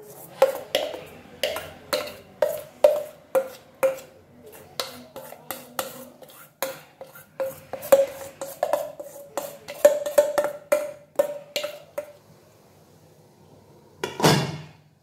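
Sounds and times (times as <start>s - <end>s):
steel bowl tapping and scraping: 0.0s - 12.2s.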